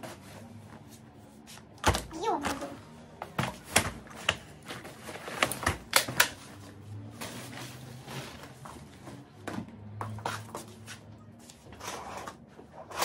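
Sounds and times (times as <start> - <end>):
wheels rolling on laminate floor: 3.2 - 10.7, 11.6 - 13.0.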